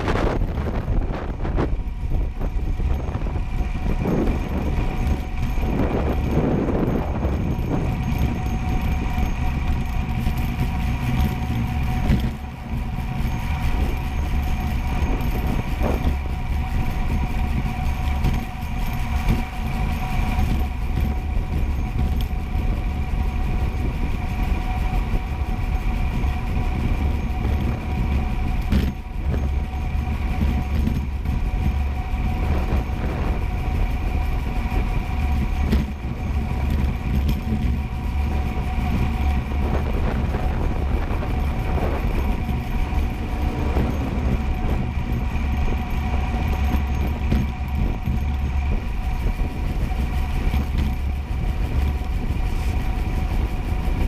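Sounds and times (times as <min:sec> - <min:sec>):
steady humming tones: 0:00.0 - 0:54.0
wheels rolling on asphalt road: 0:00.0 - 0:54.0.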